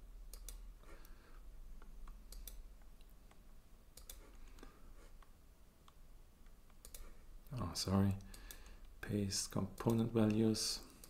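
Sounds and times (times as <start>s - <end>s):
computer mouse clicks: 0.3s - 1.2s, 1.8s - 7.1s, 8.2s - 9.0s, 9.7s - 11.0s.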